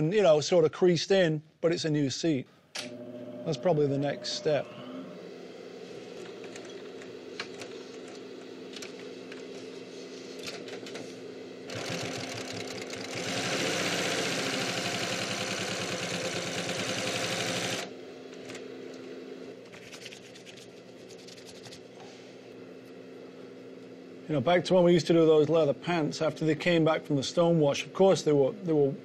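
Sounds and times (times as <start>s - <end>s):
sewing machine rattling: 11.7s - 17.8s.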